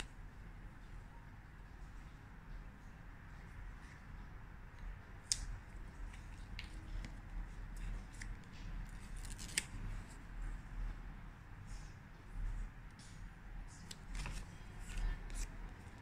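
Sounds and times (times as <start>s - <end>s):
sticker peeling snaps: 5.2s - 5.6s
paper crackling: 7.8s - 10.2s, 13.8s - 16.0s.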